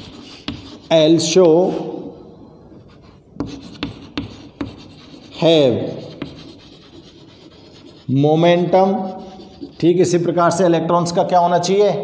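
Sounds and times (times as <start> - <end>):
chalk scratching on chalkboard: 0.0 - 1.4, 2.7 - 10.6
chalk tapping board: 0.0 - 1.4, 3.0 - 10.1.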